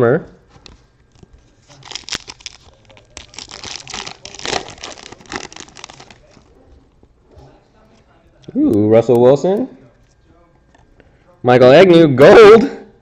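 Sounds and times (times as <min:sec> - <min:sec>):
foil wrapper crinkling and tearing: 0:01.0 - 0:06.5.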